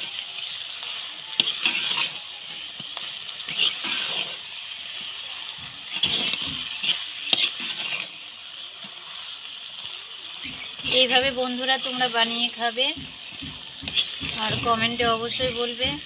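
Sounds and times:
spatula squelching through curry: 0.0 - 14.7
steady sizzle: 0.0 - 16.0.

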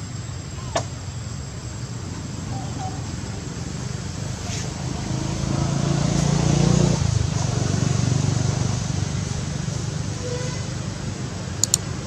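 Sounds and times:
passing motor vehicle engine: 2.0 - 11.6.

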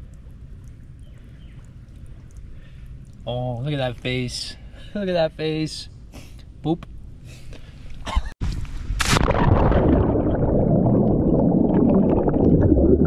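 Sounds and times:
muffled underwater rushing and bubbling: 9.2 - 13.0.

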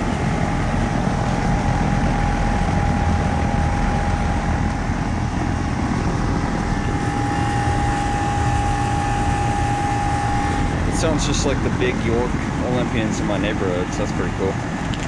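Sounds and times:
compressor humming: 0.0 - 15.0
condenser fan rushing: 0.0 - 15.0
clear steady tone: 6.6 - 11.2.

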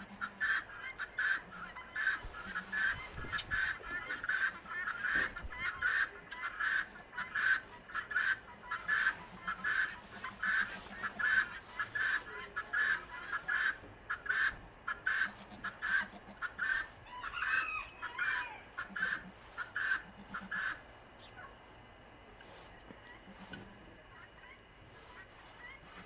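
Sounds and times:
fowl short calls: 0.0 - 21.6, 22.4 - 26.0
wavering bird call: 0.4 - 20.8.

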